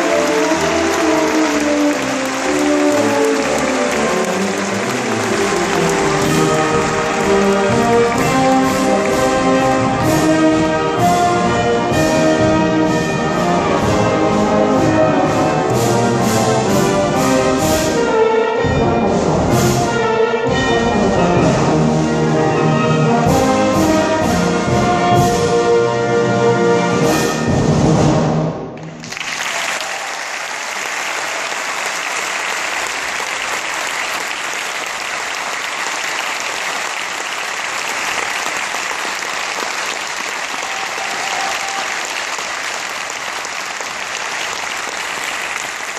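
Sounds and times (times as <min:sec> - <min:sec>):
audience applause: 0:00.0 - 0:10.3, 0:28.8 - 0:45.9
wind band playing: 0:00.0 - 0:29.8, 0:30.5 - 0:45.9.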